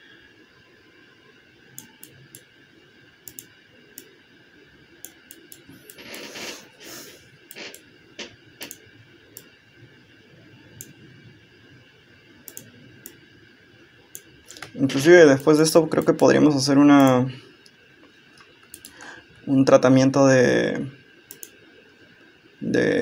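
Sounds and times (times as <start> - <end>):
computer mouse clicks: 1.8 - 2.5, 3.2 - 4.1, 5.0 - 6.6, 7.5 - 8.8, 10.8 - 11.0, 12.4 - 13.2, 14.1 - 16.2, 18.4 - 19.0, 21.3 - 21.6
breath-like rush: 18.9 - 19.4.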